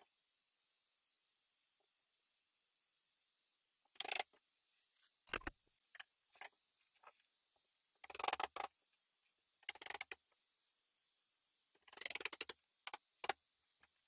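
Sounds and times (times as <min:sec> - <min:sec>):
rapid wooden clicking: 0:04.0 - 0:04.2, 0:08.0 - 0:08.7, 0:09.6 - 0:10.2, 0:11.8 - 0:13.4.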